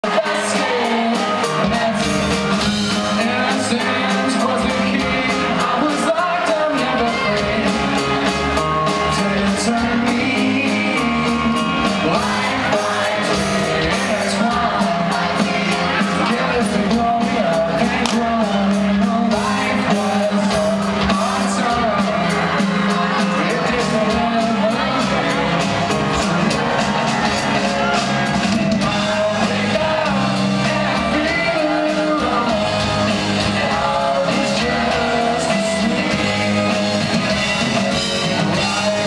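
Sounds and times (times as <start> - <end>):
bass guitar: 0.0 - 39.0
drums: 0.0 - 39.0
keyboard: 0.0 - 39.0
person singing lead vocal: 0.0 - 39.0.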